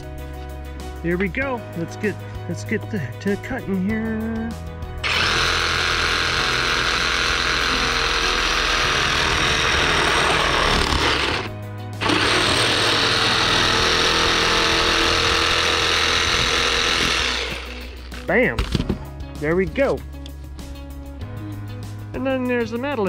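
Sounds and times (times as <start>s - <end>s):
reciprocating saw cutting pipe: 5.0s - 18.2s.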